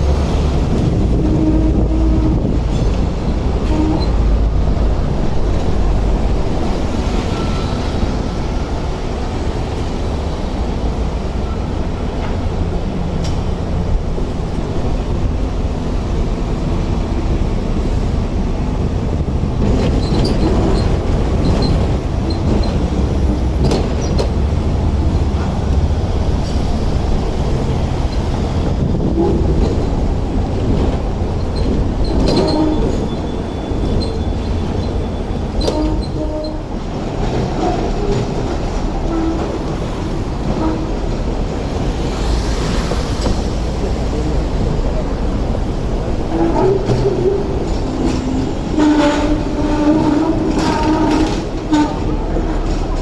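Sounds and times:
tram wheels rumbling: 0.0s - 53.0s
clanks over track joints: 19.2s - 26.8s, 27.7s - 41.5s, 44.6s - 53.0s.

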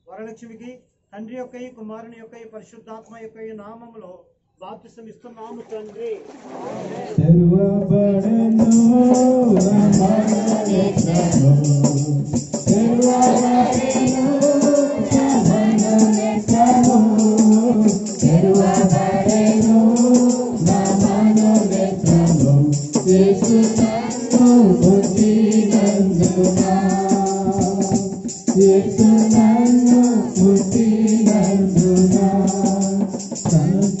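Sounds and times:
shaker and tambourine rhythm: 7.8s - 34.0s.

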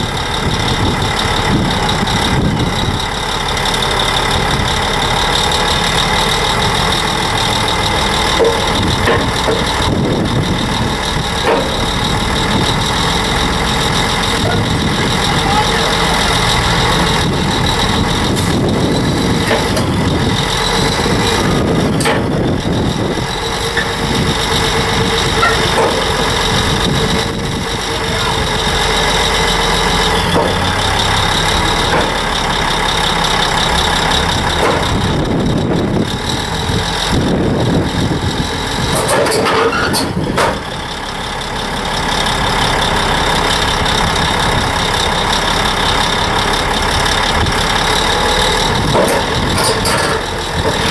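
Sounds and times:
bulldozer diesel engine running: 0.0s - 50.9s
sharp knocks from tracks: 8.2s - 22.6s, 23.7s - 27.3s, 29.8s - 30.8s, 31.8s - 32.2s, 34.4s - 35.2s, 38.9s - 40.7s, 48.8s - 50.9s.

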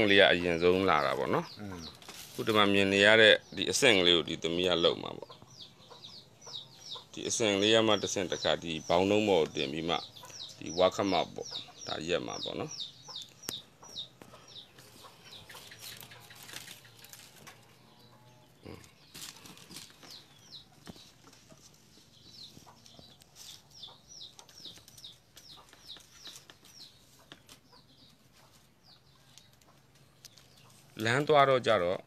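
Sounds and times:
chicks peeping: 0.0s - 32.0s
bamboo strips clicking and rattling: 15.5s - 17.8s, 29.3s - 31.2s.

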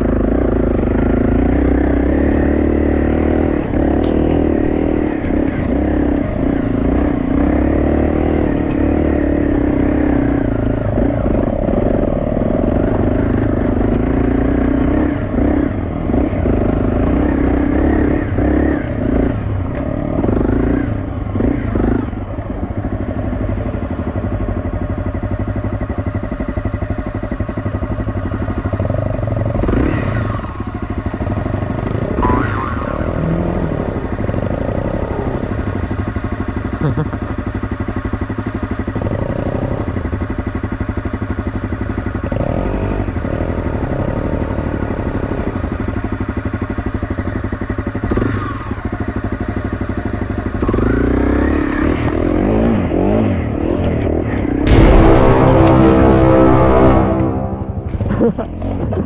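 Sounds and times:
dirt bike engine revving: 0.0s - 20.8s, 28.8s - 35.7s.

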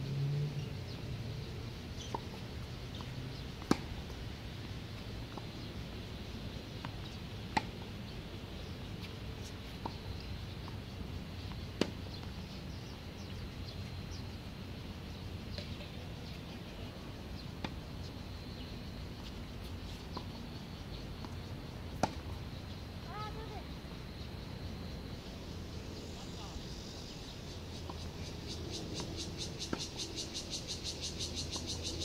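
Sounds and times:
tennis balls struck by rackets: 2.0s - 5.9s, 6.7s - 7.9s, 11.4s - 12.4s, 21.2s - 22.4s.

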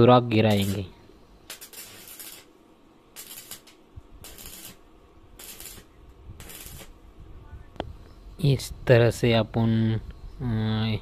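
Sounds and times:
arc welding crackling hiss: 0.0s - 7.0s.

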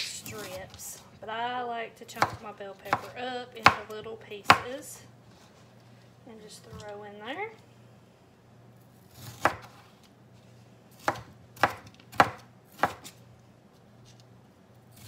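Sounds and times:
knife chopping on cutting board: 2.2s - 3.9s, 4.5s - 4.7s, 9.2s - 9.9s, 11.0s - 13.2s.

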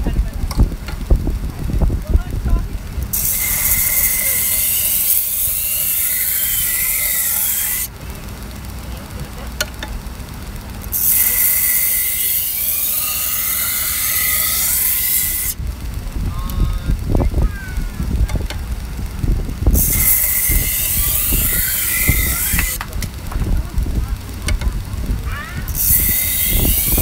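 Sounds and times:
belt sharpener motor hum: 0.4s - 27.0s
knife grinding on abrasive belt: 3.0s - 8.0s, 10.8s - 27.0s.

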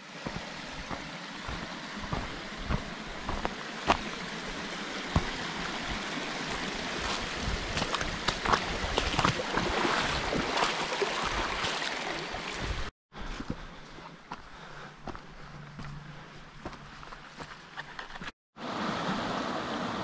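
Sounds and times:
footsteps on dry trail: 0.0s - 11.9s, 12.5s - 18.4s
creek running over rocks: 0.0s - 20.0s
footsteps crunching on stones: 0.2s - 10.8s, 13.2s - 18.4s.

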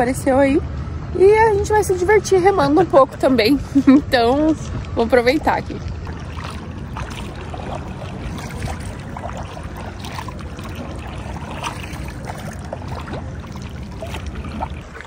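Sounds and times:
steady low rumble: 0.0s - 15.0s
water splashing off paddle: 5.7s - 15.0s.

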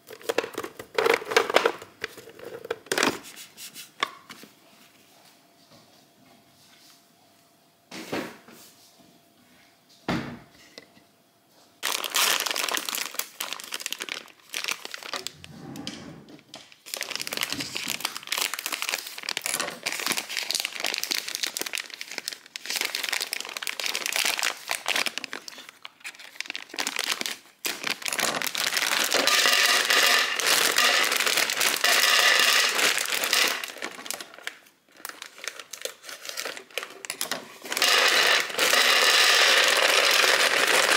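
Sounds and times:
pasta rattling into plastic canister: 0.0s - 3.2s, 11.8s - 15.4s, 16.8s - 40.9s
plastic bag crinkling: 11.8s - 15.6s, 16.7s - 40.9s.

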